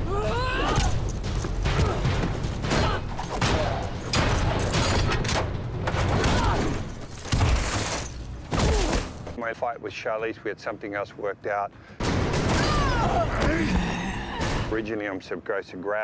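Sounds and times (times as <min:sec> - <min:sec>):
shouts and grunts: 0:00.0 - 0:01.0, 0:12.5 - 0:14.7
fight hits and clatters: 0:00.2 - 0:09.4.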